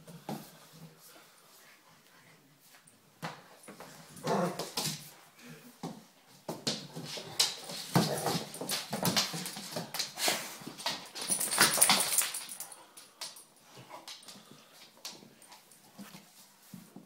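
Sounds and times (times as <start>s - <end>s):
claws on wooden floor: 6.5s - 17.0s.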